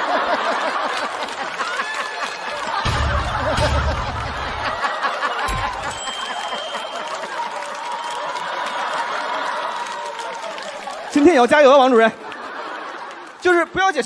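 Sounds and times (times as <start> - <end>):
studio audience laughing: 0.0 - 11.0, 12.0 - 13.8
low hit: 2.9 - 4.8, 5.5 - 6.0.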